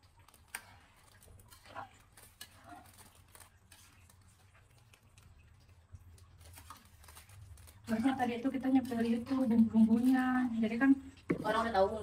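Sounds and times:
wooden spatula scraping metal wok: 0.4s - 4.6s, 6.7s - 12.0s.

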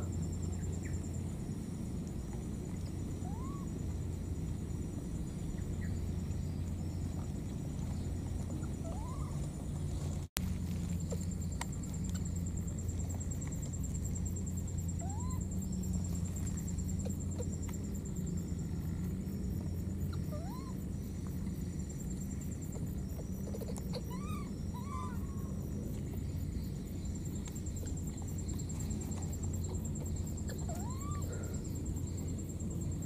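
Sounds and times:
low hum: 0.0s - 33.0s
pulsing insect trill: 0.0s - 33.0s
small animal squeaks: 8.8s - 9.4s, 15.0s - 15.4s, 23.4s - 25.5s, 30.5s - 31.6s.

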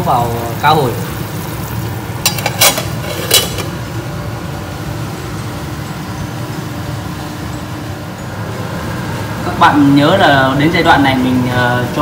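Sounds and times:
gas burner rumble: 0.0s - 12.0s
lid clinking on pot: 2.2s - 3.8s.

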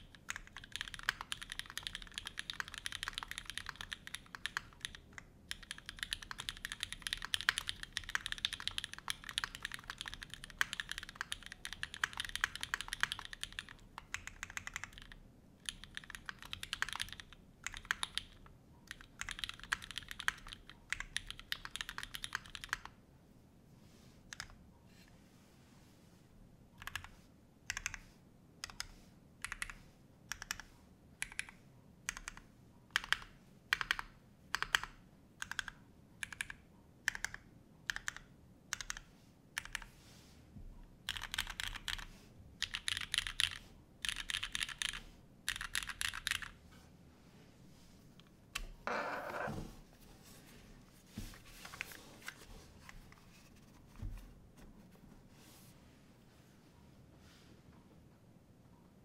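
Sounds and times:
mechanical keyboard typing: 0.0s - 22.9s, 26.8s - 27.1s, 27.7s - 28.0s, 28.6s - 39.9s, 41.0s - 46.6s.

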